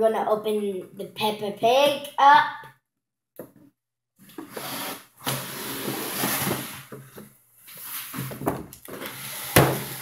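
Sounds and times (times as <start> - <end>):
plastic toy scraping cardboard box: 4.4 - 6.9, 9.0 - 10.0.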